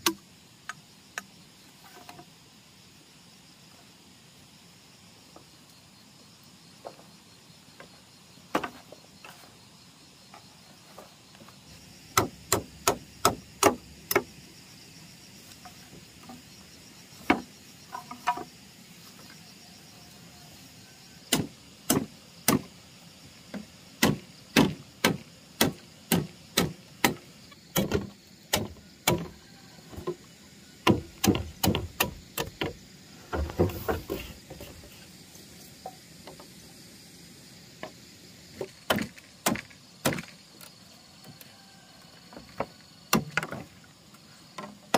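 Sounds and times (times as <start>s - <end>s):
sharp chopping blows: 24.0s - 29.3s.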